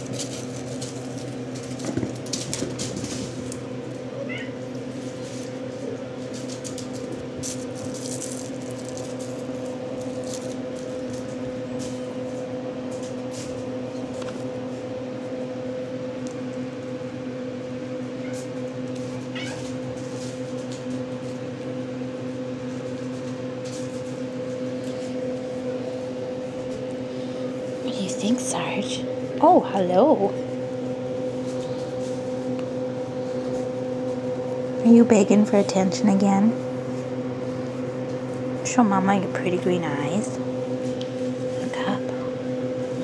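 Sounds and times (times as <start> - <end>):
light rustles and clicks: 0.0 - 3.7
steady low hum: 0.0 - 43.0
kitten mewing: 4.1 - 4.6, 18.2 - 19.8.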